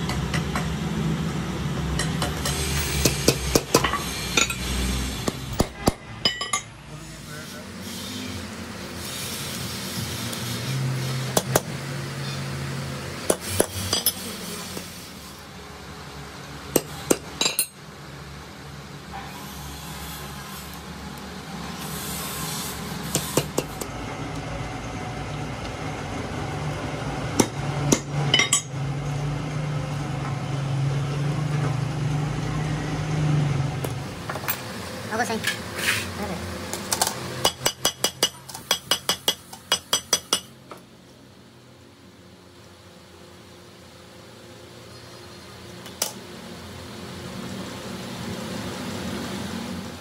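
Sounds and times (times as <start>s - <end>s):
hammer striking metal: 37.4s - 40.5s.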